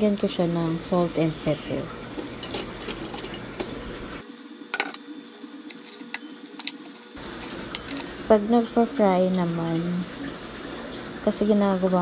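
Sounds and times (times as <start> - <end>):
chicken sizzling in oil: 0.0 - 12.0
metal utensil clinking on pan: 5.7 - 7.0, 7.6 - 8.2.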